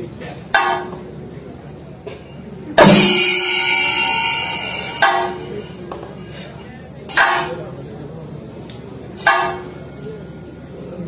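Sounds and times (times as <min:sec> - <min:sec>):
drums struck with sticks: 0:00.4 - 0:01.1, 0:02.8 - 0:06.2, 0:07.1 - 0:07.6, 0:09.2 - 0:09.8
crash of drum and cymbals: 0:02.8 - 0:06.3
hand cymbals: 0:02.8 - 0:07.7.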